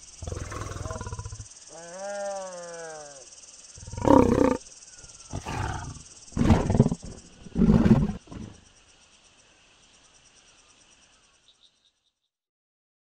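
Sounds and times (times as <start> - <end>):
lions growling: 0.2 - 1.5, 3.8 - 4.6, 5.3 - 8.6.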